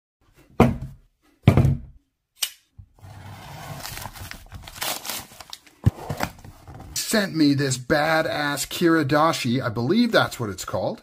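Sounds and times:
packaging rustling and scraping: 3.0 - 7.0.

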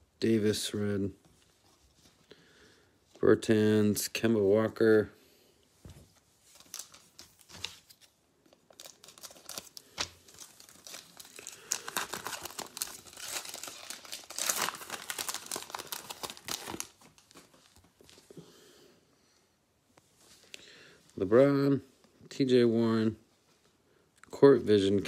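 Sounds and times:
foil wrapper tearing and crinkling: 8.7 - 17.6.

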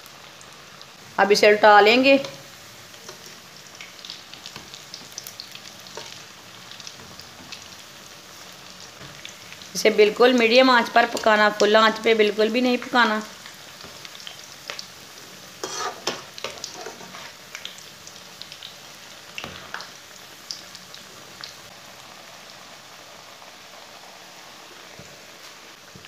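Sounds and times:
oil sizzling: 0.0 - 26.0
metal spatula scraping pan: 15.6 - 17.4.

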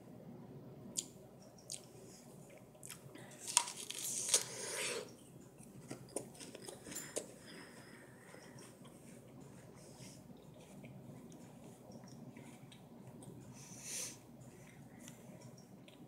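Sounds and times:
mouth clicks and chewing: 1.0 - 1.9.

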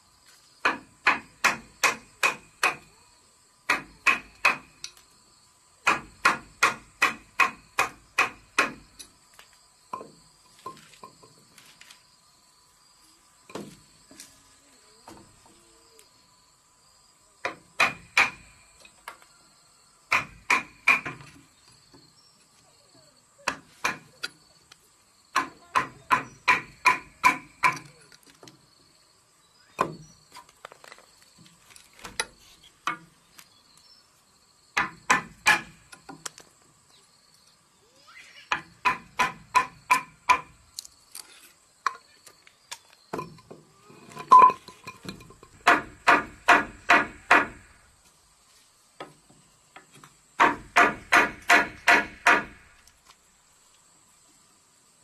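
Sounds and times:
hammer striking chisel into wood: 0.6 - 2.9, 3.7 - 4.8, 5.8 - 8.8, 17.4 - 18.5, 20.1 - 21.3, 23.5 - 24.1, 25.3 - 27.9, 34.8 - 35.8, 38.5 - 40.5, 45.6 - 47.6, 50.4 - 52.6.

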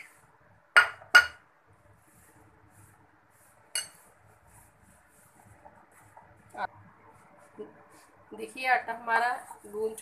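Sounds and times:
spoon clinking against dishes: 3.7 - 4.0.

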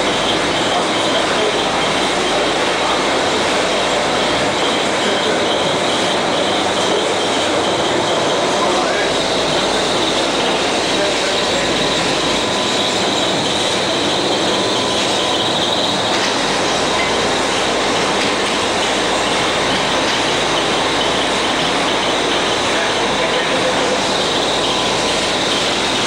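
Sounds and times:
bottle filling machine clatter: 0.0 - 26.0
faint machine whine: 0.0 - 26.0.

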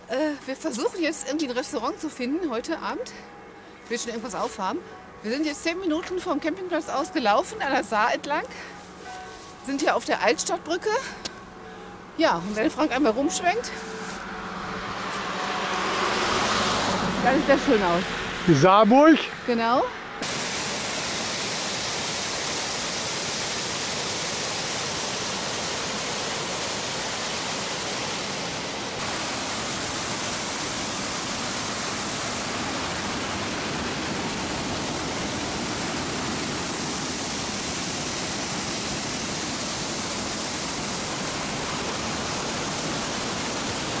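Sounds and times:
waterfall roaring: 0.0 - 2.9, 20.2 - 44.0.

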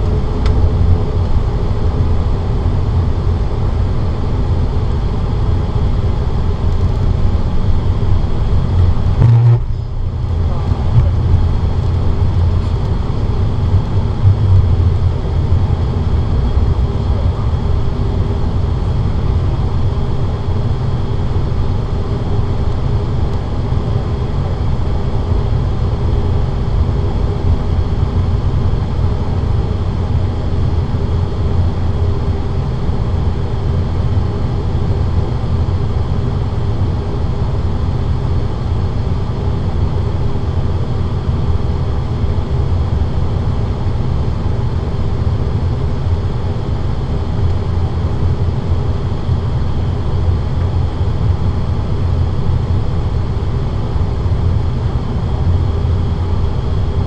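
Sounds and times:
turboprop engines droning: 0.0 - 57.0
faint high whine: 7.9 - 25.3.

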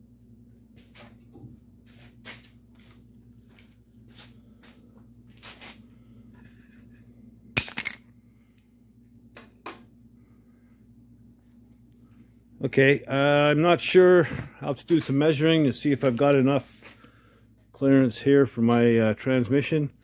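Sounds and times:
steady low hum: 0.0 - 20.0
footsteps on shop floor: 0.6 - 5.8.

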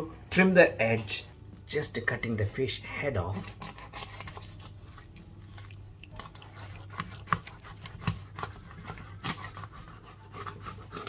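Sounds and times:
bone cracking: 3.3 - 9.9
knife crunching through fish bone: 3.3 - 11.0.

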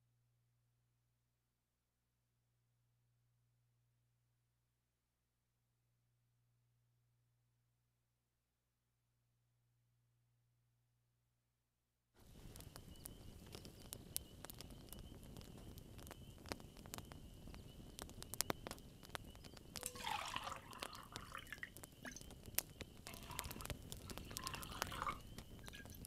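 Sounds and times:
campfire crackling and popping: 12.2 - 26.0
liquid pouring into tin cup: 19.8 - 22.3, 23.1 - 26.0.

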